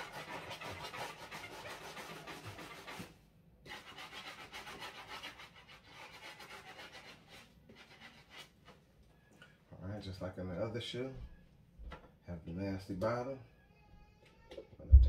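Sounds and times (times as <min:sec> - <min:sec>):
brush scrubbing shoe: 0:00.0 - 0:03.1, 0:03.7 - 0:08.6.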